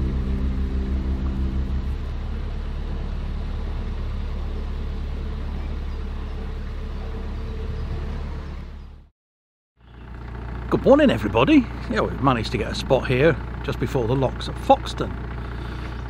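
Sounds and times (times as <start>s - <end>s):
background music: 0.0s - 3.1s
boat engine low hum: 0.0s - 9.1s, 9.8s - 16.0s.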